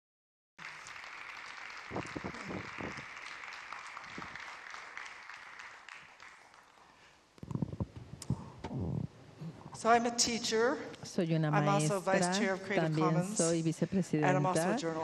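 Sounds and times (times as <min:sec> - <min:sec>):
audience applause: 0:00.6 - 0:07.2.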